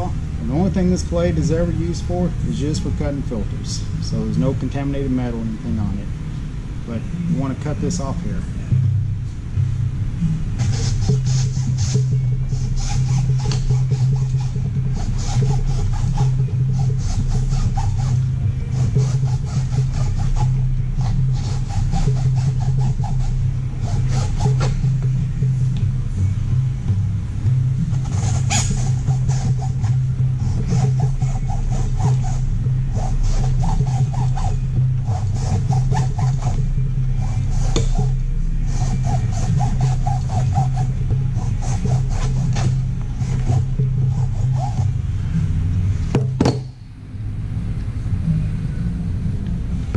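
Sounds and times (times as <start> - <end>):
low hum: 0.0 - 49.9
hacksaw cutting metal: 12.8 - 24.8, 28.0 - 36.6, 37.2 - 44.9.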